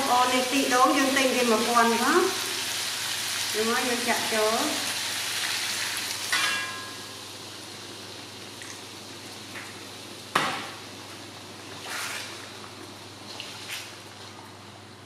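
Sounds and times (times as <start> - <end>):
pan heating hiss: 0.0 - 11.2.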